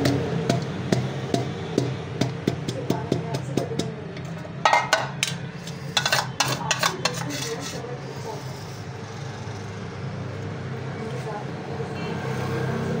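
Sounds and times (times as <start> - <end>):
spoon scraping steel bowl: 4.7 - 8.9
soft spreading on bread: 6.7 - 8.5.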